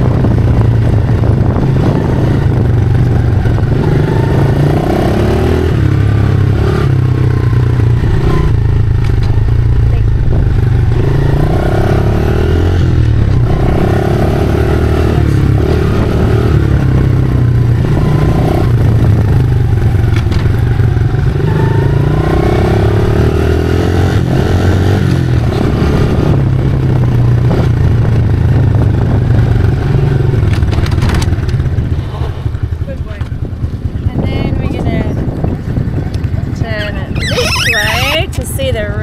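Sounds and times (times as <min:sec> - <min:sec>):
motorcycle engine revving: 0:00.0 - 0:30.5, 0:37.1 - 0:38.4.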